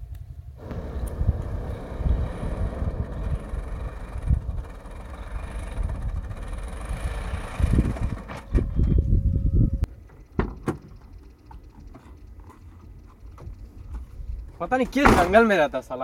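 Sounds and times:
tyres rolling on dirt: 0:00.6 - 0:08.8, 0:10.0 - 0:16.0
car engine running: 0:00.6 - 0:09.1.

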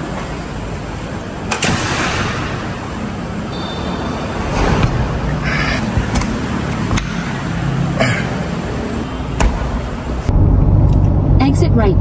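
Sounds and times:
low vehicle rumble: 0:10.0 - 0:12.0.

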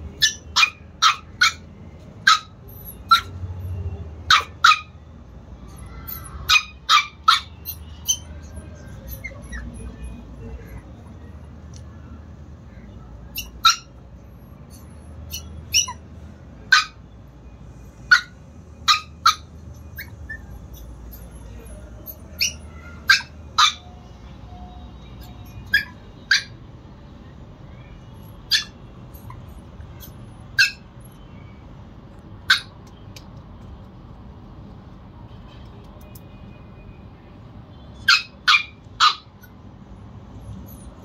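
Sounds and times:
puppy yapping: 0:00.2 - 0:03.4, 0:04.2 - 0:05.0, 0:05.8 - 0:10.0, 0:13.3 - 0:14.0, 0:14.7 - 0:16.0, 0:16.6 - 0:17.0, 0:18.1 - 0:21.3, 0:22.0 - 0:23.9, 0:25.2 - 0:26.5, 0:28.5 - 0:29.4, 0:30.0 - 0:30.9, 0:32.4 - 0:32.9, 0:38.0 - 0:39.6.

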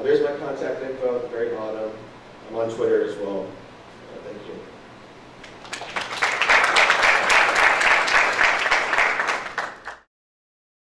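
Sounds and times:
audience applause: 0:05.4 - 0:10.1.

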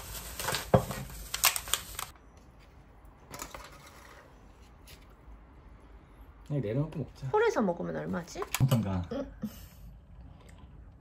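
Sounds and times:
cardboard and foil crinkling: 0:00.0 - 0:02.1.

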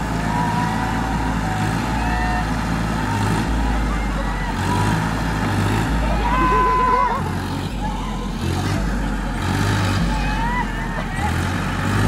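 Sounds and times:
distant voices shouting: 0:00.0 - 0:12.0
tractor engine running under load: 0:00.0 - 0:12.0.

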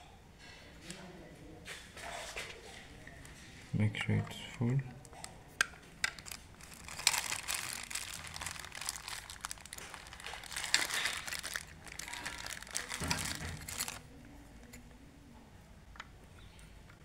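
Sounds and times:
plastic bag crinkling: 0:06.0 - 0:14.1.

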